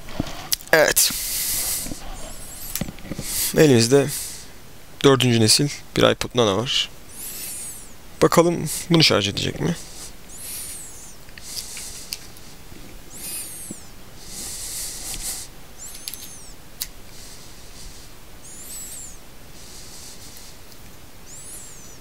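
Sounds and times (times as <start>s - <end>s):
hissing rustle: 0.1s - 4.6s, 7.0s - 22.0s
power bank squeaky chirps: 2.2s - 2.8s, 10.3s - 11.7s, 13.1s - 14.0s, 15.3s - 16.6s, 17.9s - 19.2s, 21.2s - 22.0s
sharp clicks: 15.8s - 17.0s.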